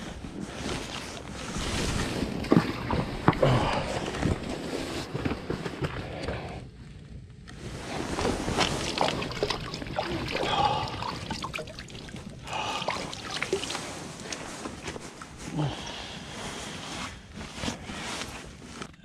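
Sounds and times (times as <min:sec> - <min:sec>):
water splashing and trickling: 0:07.9 - 0:15.4.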